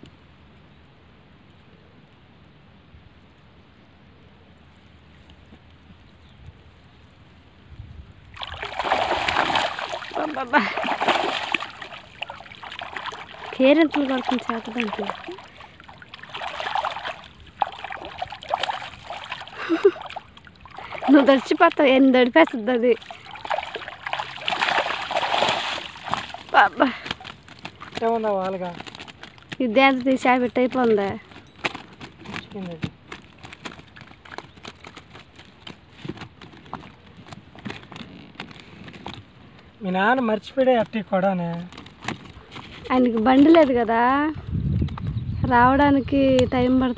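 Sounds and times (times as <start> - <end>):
water trickling and splashing: 8.1 - 46.9.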